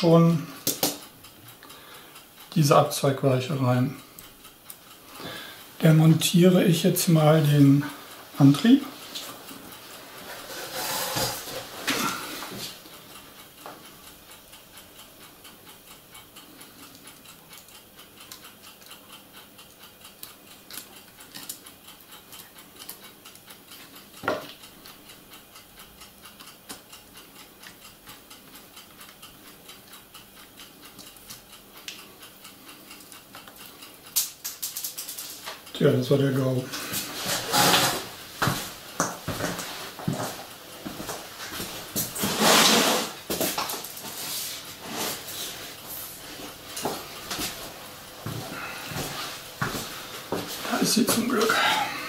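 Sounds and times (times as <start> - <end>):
faint repeating ticking: 0.0 - 10.0, 12.8 - 34.4
plastic clicks and rustles from hands: 33.4 - 35.7.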